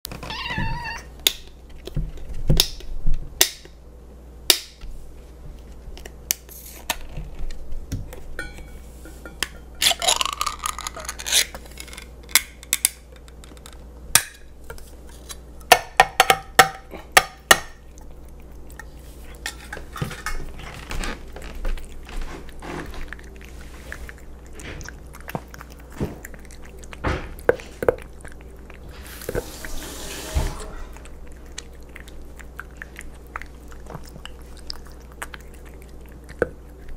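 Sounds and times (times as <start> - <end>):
metallic clinks on steel bowl: 8.4 - 9.8
cat chewing wet food: 17.8 - 29.8, 30.8 - 36.9.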